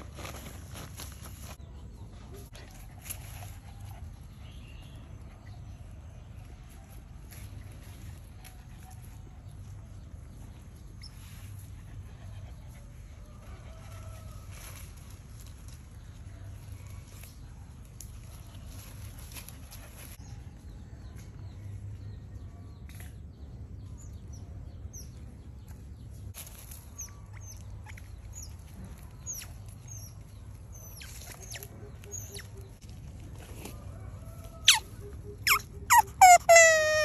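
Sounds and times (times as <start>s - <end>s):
otter squeaking: 35.4s - 37.0s.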